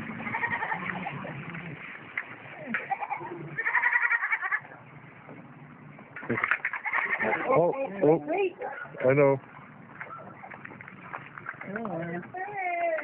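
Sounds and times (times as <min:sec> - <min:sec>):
farm animal bleating: 0:00.1 - 0:01.6, 0:02.7 - 0:04.7, 0:06.7 - 0:08.0.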